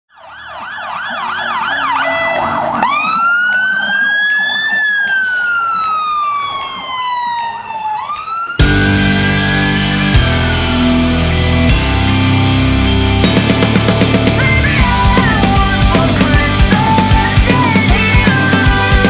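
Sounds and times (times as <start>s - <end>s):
fire engine siren: 0.1s - 11.7s
loud music: 8.6s - 19.0s.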